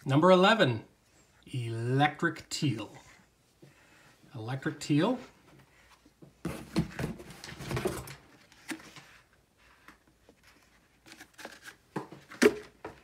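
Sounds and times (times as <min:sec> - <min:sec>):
cardboard scraping and rustling: 0:06.4 - 0:12.4.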